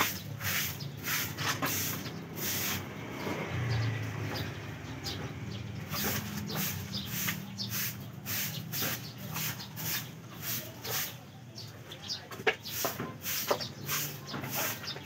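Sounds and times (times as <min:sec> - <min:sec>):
broom sweeping: 0:00.0 - 0:02.9, 0:05.9 - 0:11.4, 0:12.6 - 0:15.0.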